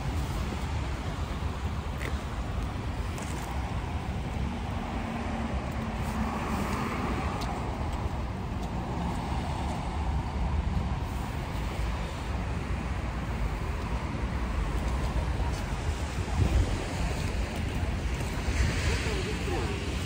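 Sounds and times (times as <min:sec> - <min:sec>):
cars passing on road: 0:00.0 - 0:20.0.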